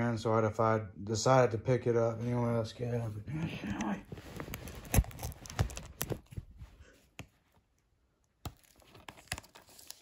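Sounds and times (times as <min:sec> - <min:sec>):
plastic case crinkling: 0:04.1 - 0:06.6.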